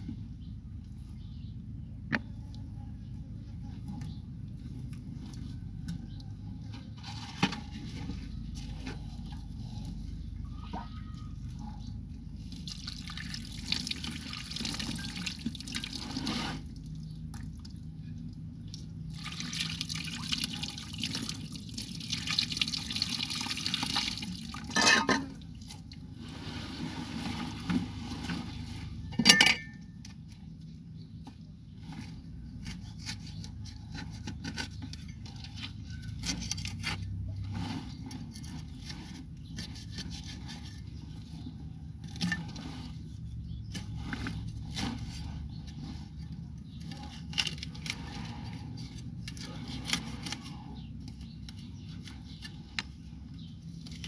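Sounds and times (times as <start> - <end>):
roots crackling and rustling: 31.7 - 54.0.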